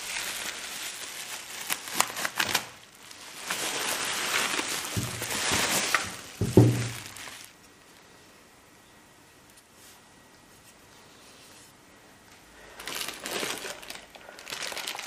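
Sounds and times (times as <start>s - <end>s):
bubble wrap crinkling and popping: 0.0s - 8.0s, 12.6s - 15.0s.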